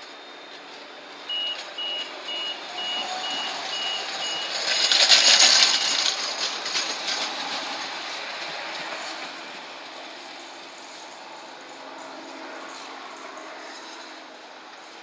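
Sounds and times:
tram running past: 0.0s - 15.0s
electronic warning beeps: 1.2s - 4.9s.

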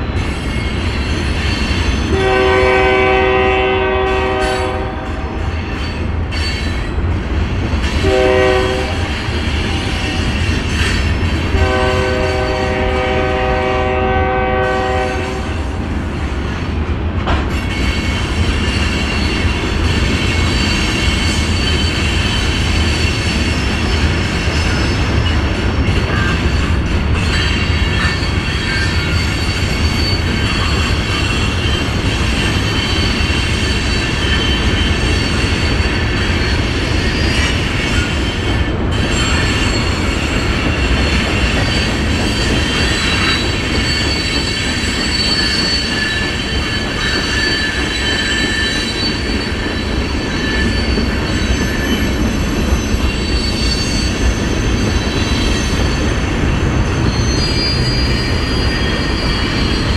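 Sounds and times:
freight train rumble: 0.0s - 59.9s
wheel squeal: 17.6s - 59.9s.

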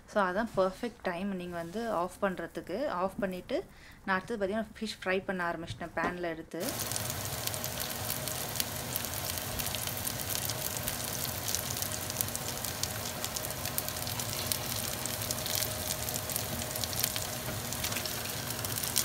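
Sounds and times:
fish sizzling in hot oil: 6.6s - 19.0s.

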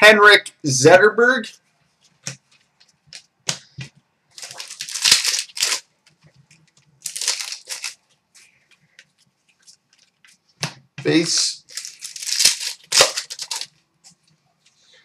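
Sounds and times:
card pack wrapper crinkling: 4.4s - 5.9s, 6.7s - 8.0s, 11.6s - 13.8s.

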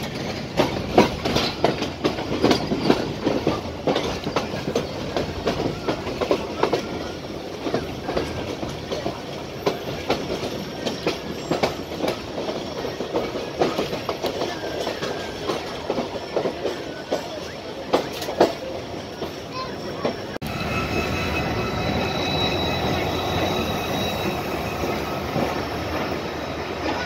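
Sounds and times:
train rumble: 0.0s - 27.0s
train wheels clattering on rails: 0.0s - 27.0s.

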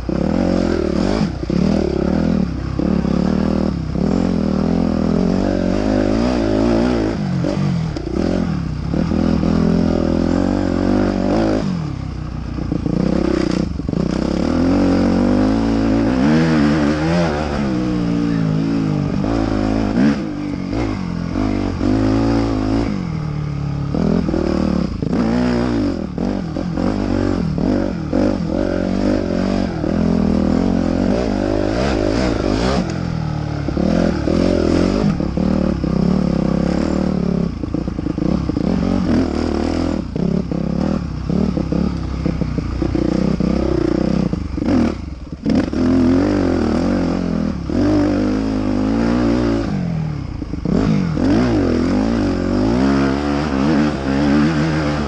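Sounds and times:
motocross bike engine revving: 0.0s - 55.0s.

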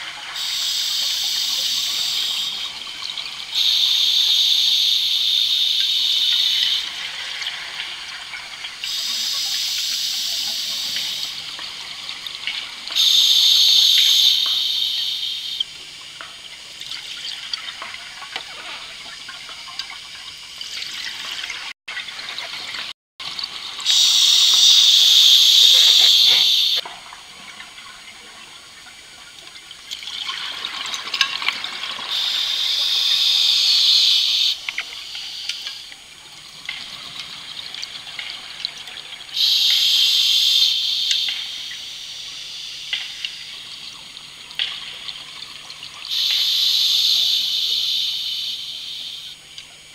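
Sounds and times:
hissing bubbling exhaust: 23.8s - 26.8s.

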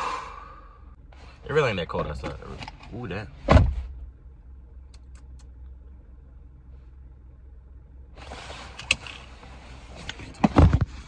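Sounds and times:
car interior rumble: 0.0s - 11.0s.

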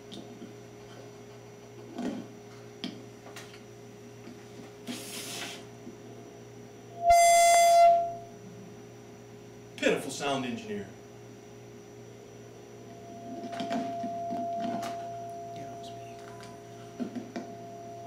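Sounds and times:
electrical hum: 0.0s - 18.0s
brief hiss: 4.9s - 5.6s
loud electronic beep: 7.0s - 8.2s.

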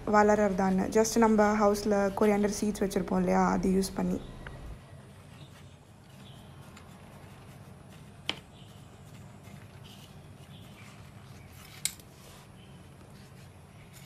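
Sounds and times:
low steady hum: 0.0s - 14.0s
paintbrush scraping soil: 5.0s - 14.0s.

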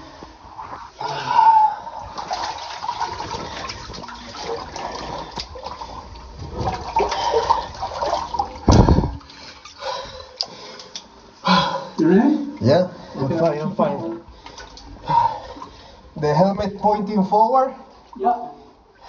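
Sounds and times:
water sloshing and splashing: 0.0s - 11.4s, 12.4s - 17.1s
heavy water thump: 2.0s - 10.2s.

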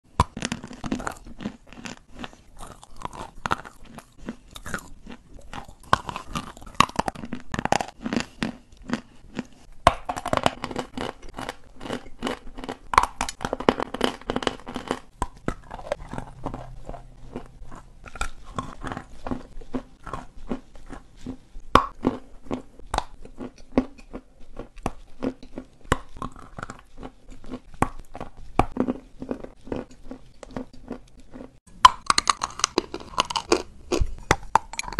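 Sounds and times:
chalk being chewed: 10.4s - 34.9s.

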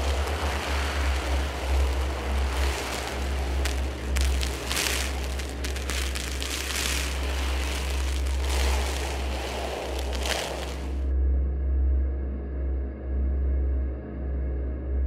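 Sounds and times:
deep rumble: 0.0s - 11.1s
rain-like hiss: 0.0s - 11.1s.

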